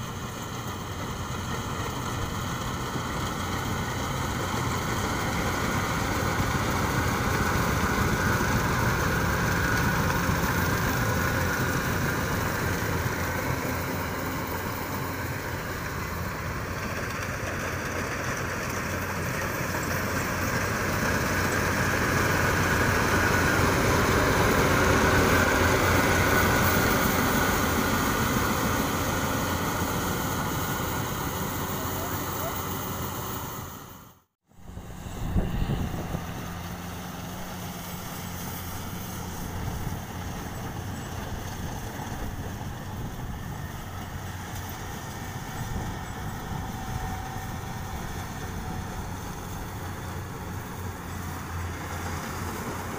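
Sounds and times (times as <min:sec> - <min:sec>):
combine harvester droning: 0:00.0 - 0:52.9.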